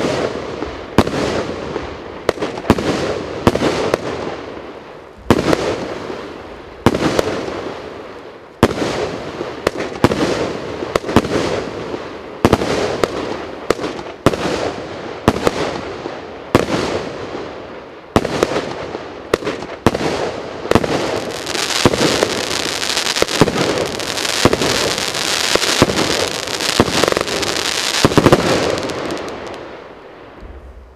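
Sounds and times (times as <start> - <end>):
firework bangs: 5.2 - 7.7, 18.2 - 30.9
firework crackle: 18.2 - 30.9.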